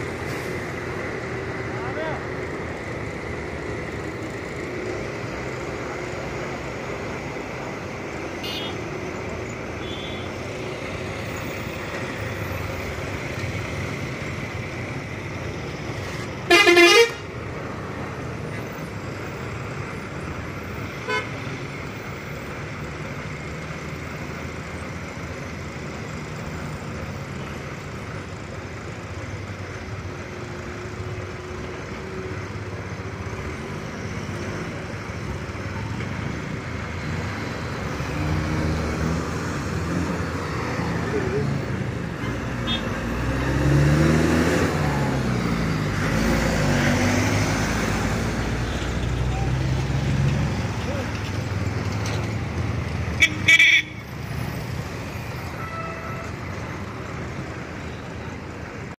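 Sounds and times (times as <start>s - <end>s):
traffic engines and tyre noise: 0.0s - 58.9s
vehicle horn blast: 8.4s - 8.8s, 16.5s - 17.2s, 53.2s - 54.0s
motorcycles climbing: 49.3s - 53.1s.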